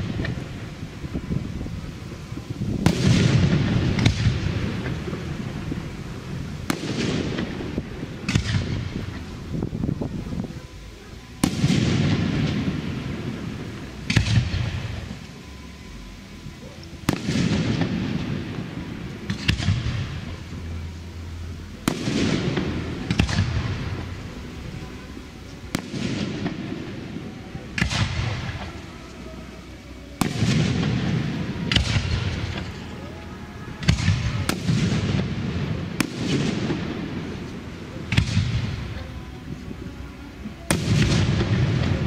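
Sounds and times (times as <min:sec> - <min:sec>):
firework shells bursting: 0:30.2 - 0:33.1.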